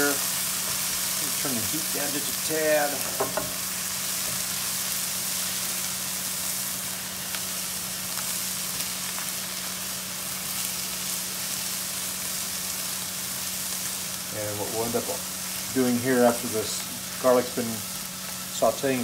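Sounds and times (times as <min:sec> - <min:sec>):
vegetables sizzling in a frying pan: 0:00.0 - 0:19.0.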